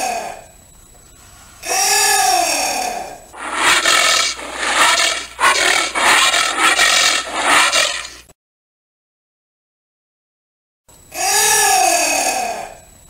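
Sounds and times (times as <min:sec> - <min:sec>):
anteater breathy huffs: 0:03.4 - 0:08.2.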